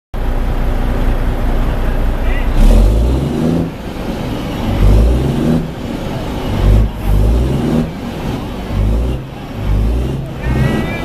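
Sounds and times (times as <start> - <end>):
diesel truck engine revving: 0.2 - 11.0.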